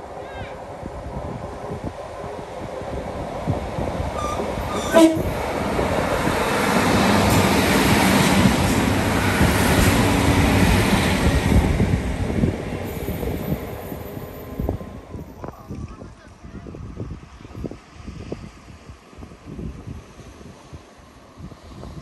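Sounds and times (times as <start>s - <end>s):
passenger train rumbling past: 0.0s - 22.0s
train horn toot: 4.2s - 5.4s.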